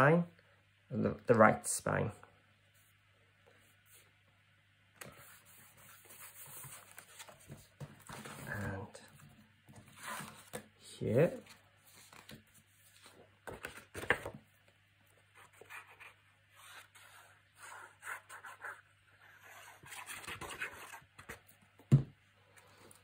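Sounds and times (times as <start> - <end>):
paper rustling and scraping: 5.0 - 8.9, 9.7 - 10.6.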